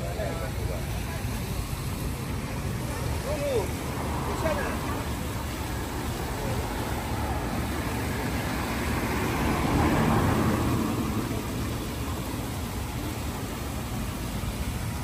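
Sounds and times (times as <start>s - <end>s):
street traffic rumble: 0.0s - 15.0s
motor vehicle passing: 2.9s - 14.5s.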